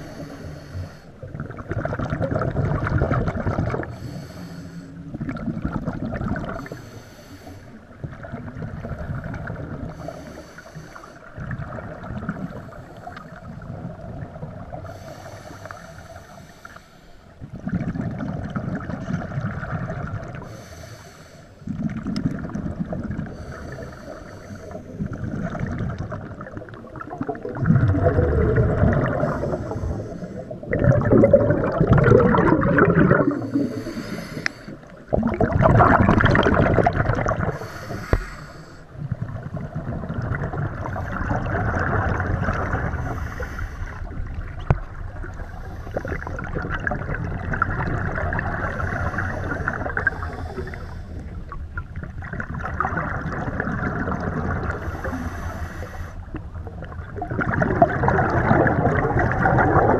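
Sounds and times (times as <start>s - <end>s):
regulator breathing underwater: 0.0s - 1.4s, 3.7s - 5.3s, 6.4s - 8.0s, 9.7s - 11.4s, 12.4s - 13.7s, 14.7s - 17.5s, 20.3s - 39.2s, 40.7s - 46.8s, 47.9s - 51.6s, 53.8s - 56.6s
exhaled bubbles rushing: 1.2s - 4.1s, 5.1s - 6.8s, 8.0s - 10.0s, 11.3s - 15.0s, 17.5s - 20.5s, 21.7s - 23.8s, 24.7s - 37.8s, 39.0s - 55.3s, 56.2s - 59.9s.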